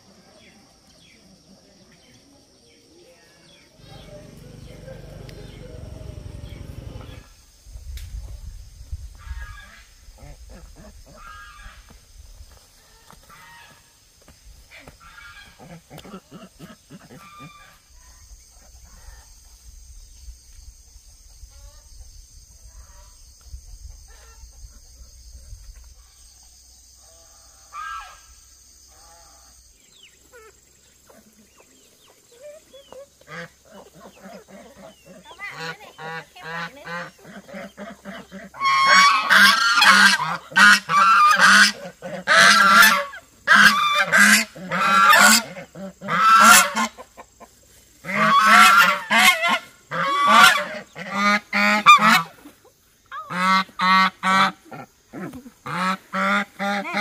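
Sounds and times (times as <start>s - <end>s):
geese honking: 3.8s - 7.3s, 35.4s - 47.0s, 48.0s - 52.3s.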